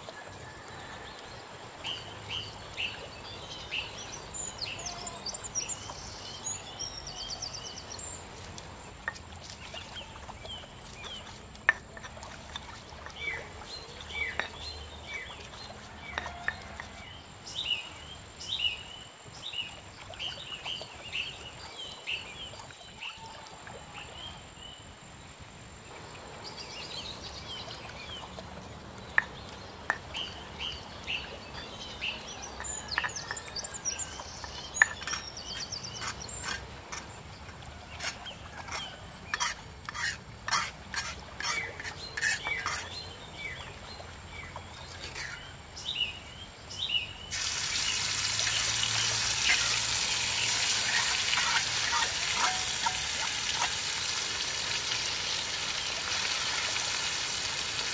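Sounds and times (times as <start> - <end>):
stone pestle grinding in mortar: 38.0 - 42.9
birds chirping: 44.4 - 54.5.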